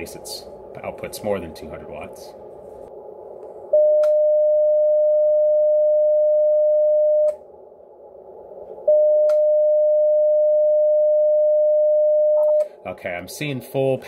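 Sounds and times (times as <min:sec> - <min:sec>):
steady single-pitched beep: 0:03.8 - 0:07.4, 0:08.9 - 0:12.7.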